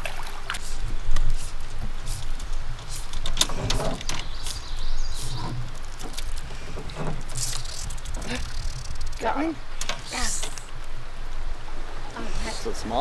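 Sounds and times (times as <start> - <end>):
fly line stripped through rod guides: 0.6 - 9.2.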